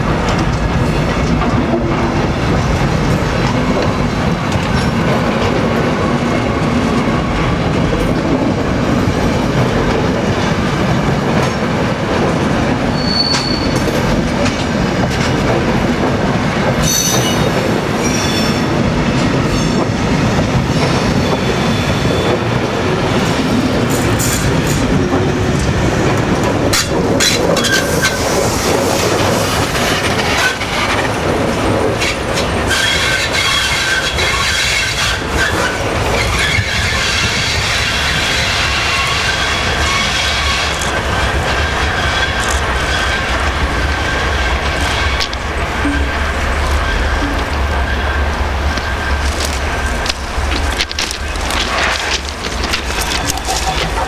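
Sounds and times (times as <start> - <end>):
train wheels clattering over rails: 0.0 - 54.0
high-pitched wheel squeals: 12.9 - 13.8.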